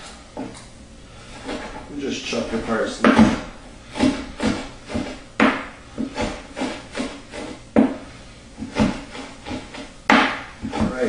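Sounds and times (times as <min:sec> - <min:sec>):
knife chopping on cutting board: 0:02.5 - 0:11.0.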